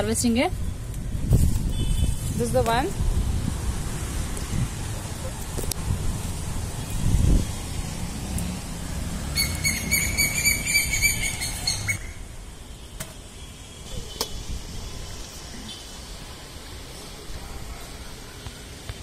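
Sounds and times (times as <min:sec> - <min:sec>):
leaves rustling: 0:00.9 - 0:12.6.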